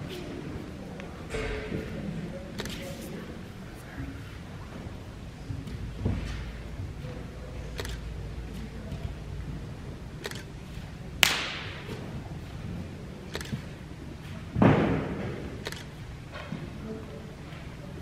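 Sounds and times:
open-hand strikes cracking: 11.2 - 11.8
heavy thump: 14.5 - 15.4.

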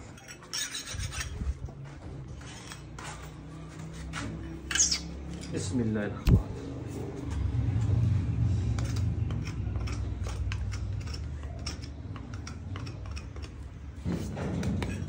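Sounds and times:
low rumble: 6.2 - 11.2
hoof tools clicking and snipping: 8.8 - 15.0.

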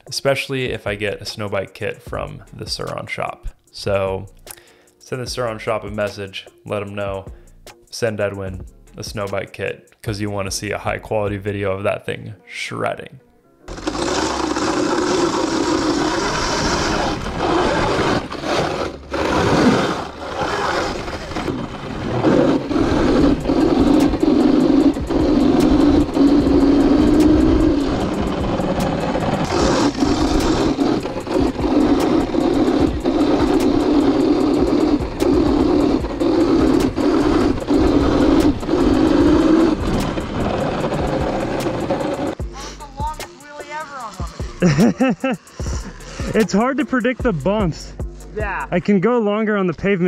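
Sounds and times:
background music: 0.0 - 50.0
electric dirt bike riding: 13.7 - 42.4, 43.4 - 47.7.

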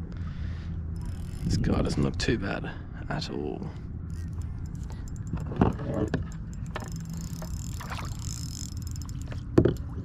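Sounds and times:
wind rumble on microphone: 1.0 - 2.6
water lapping: 4.2 - 10.0.

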